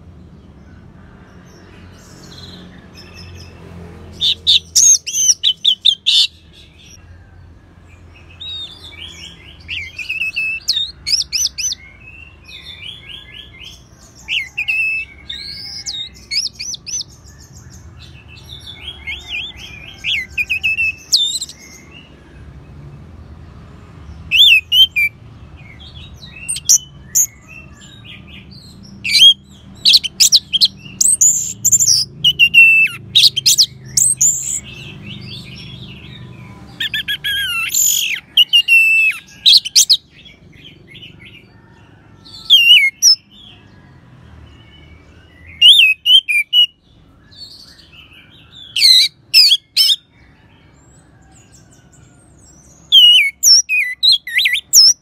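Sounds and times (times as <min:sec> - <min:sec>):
thrush singing trills and whistles: 0:04.2 - 0:07.0, 0:08.3 - 0:22.1, 0:24.3 - 0:36.0, 0:36.8 - 0:40.4, 0:42.4 - 0:43.3, 0:45.0 - 0:50.1, 0:52.8 - 0:55.0.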